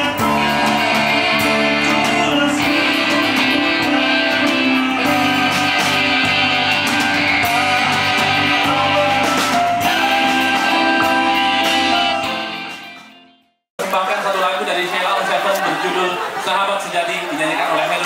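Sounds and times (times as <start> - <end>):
bass guitar: 0.0 - 13.2
drums: 0.0 - 13.2
electric guitars: 0.0 - 13.2
keyboard: 0.0 - 13.4.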